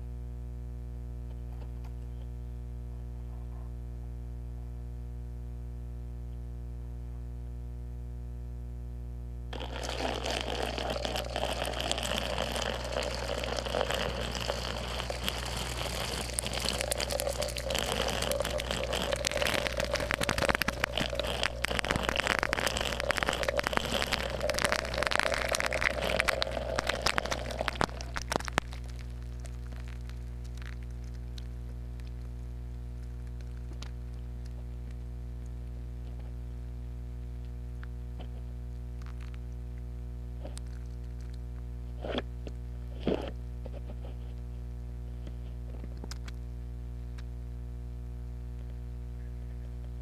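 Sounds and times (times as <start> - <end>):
electrical hum: 0.0 - 50.0
water crackling on metal: 9.6 - 35.0.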